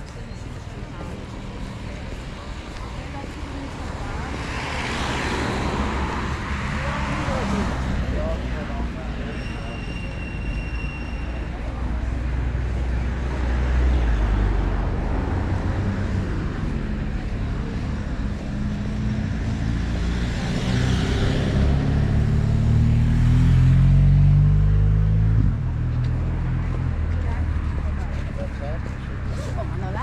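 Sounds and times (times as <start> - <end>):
vehicle engine accelerating past: 14.3 - 29.7.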